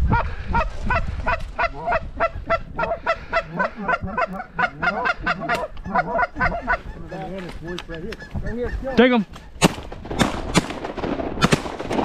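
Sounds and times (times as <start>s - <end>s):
low wavering goose calls: 0.1s - 9.6s
geese honking: 0.1s - 9.7s.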